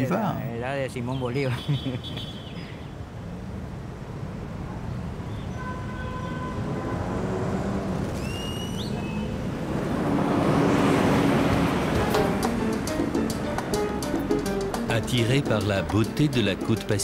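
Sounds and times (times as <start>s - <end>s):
street traffic rumble: 0.0s - 17.0s
bus passing close: 6.6s - 14.7s.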